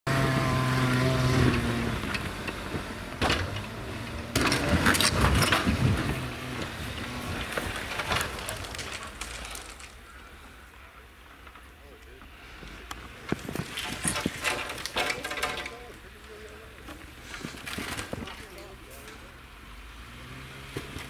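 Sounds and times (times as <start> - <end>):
engine running: 0.1 - 21.0
loud knocks and clatter: 1.5 - 9.9, 13.3 - 15.8.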